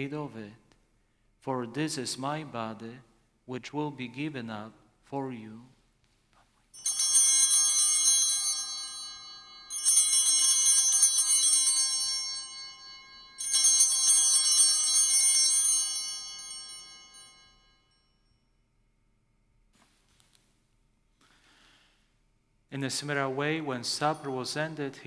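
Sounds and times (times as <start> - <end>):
altar bells jangling: 6.7 - 18.5.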